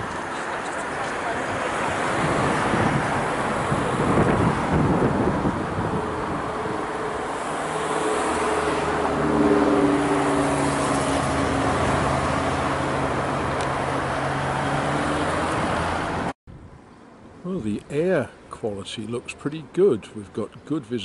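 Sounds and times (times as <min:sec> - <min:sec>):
road traffic noise: 0:00.0 - 0:21.0.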